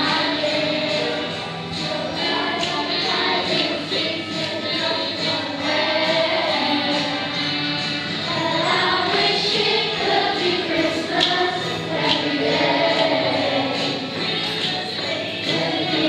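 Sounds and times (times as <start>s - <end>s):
group singing a christmas song: 0.0s - 16.0s.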